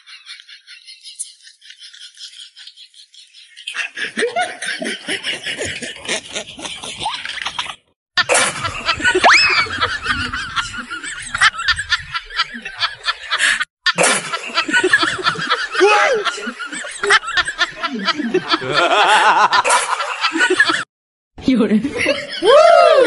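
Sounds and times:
people laughing and snickering: 3.6 - 20.9.

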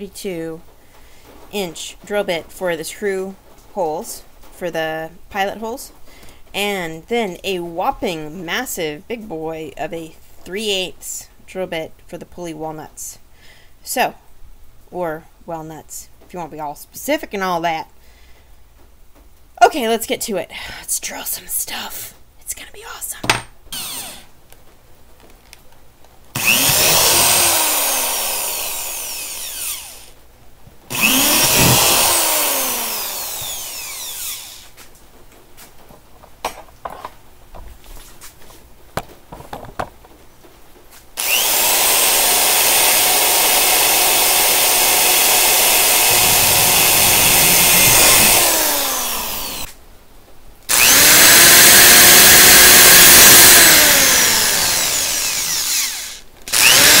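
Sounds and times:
power drill drilling plastic: 23.8 - 24.2, 26.4 - 30.1, 30.9 - 34.8, 41.2 - 49.7, 50.7 - 57.0.

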